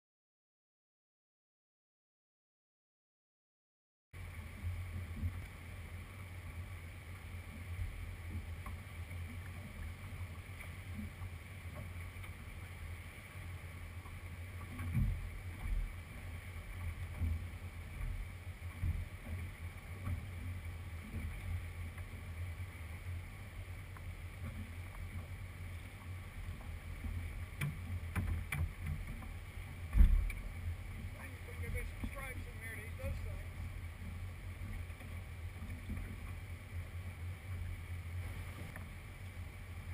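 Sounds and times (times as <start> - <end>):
wind and water rumble: 4.2 - 39.9
boat bumps: 14.0 - 22.2, 24.3 - 36.5
sharp knocks and clicks: 27.0 - 29.3.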